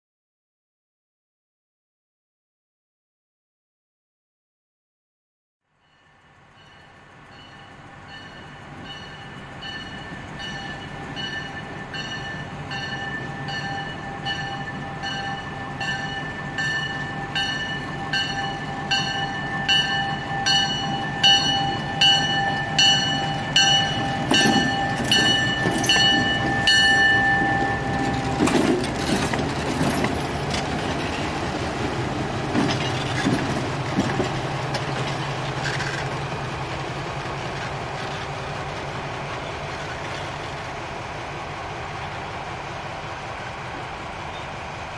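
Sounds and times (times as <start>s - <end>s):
locomotive bell ringing: 5.7s - 36.1s
train wheels clacking over rail joints: 7.3s - 40.9s.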